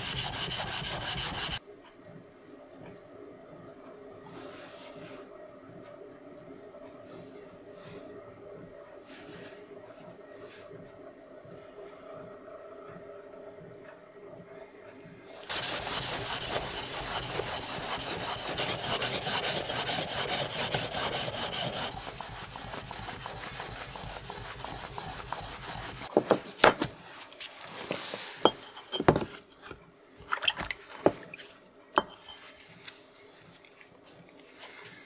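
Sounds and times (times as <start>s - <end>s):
blade scraping on whetstone: 0.0s - 1.6s, 15.5s - 26.1s.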